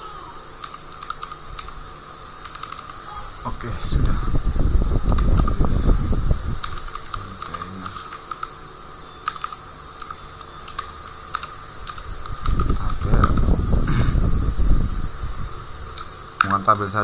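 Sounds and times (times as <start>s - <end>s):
keyboard keystroke clicks: 0.6s - 1.8s, 2.4s - 3.0s, 6.6s - 8.5s, 9.2s - 13.4s, 16.0s - 16.9s.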